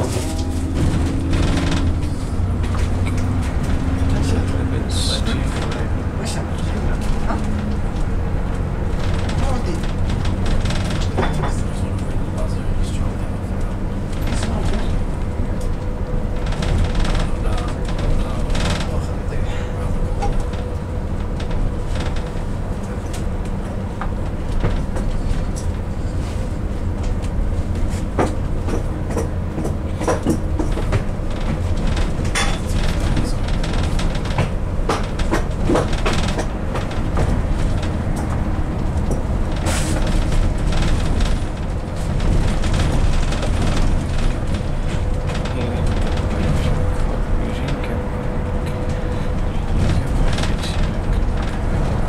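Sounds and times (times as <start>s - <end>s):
bodywork rattles and clicks: 0.0s - 52.0s
bus engine and road rumble: 0.0s - 52.0s.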